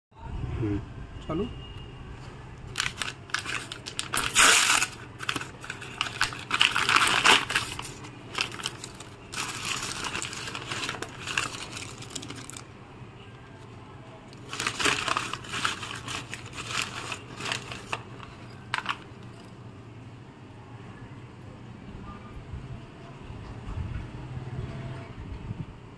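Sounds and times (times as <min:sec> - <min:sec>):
paper rustling and tearing: 0:02.7 - 0:12.7, 0:14.4 - 0:19.0
sharp paper crackle: 0:02.7 - 0:12.7, 0:14.4 - 0:19.2.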